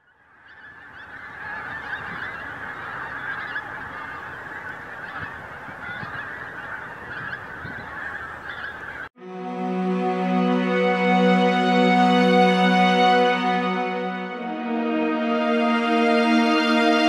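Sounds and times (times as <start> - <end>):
geese honking in flight: 0.1 - 17.0
music: 9.2 - 17.0.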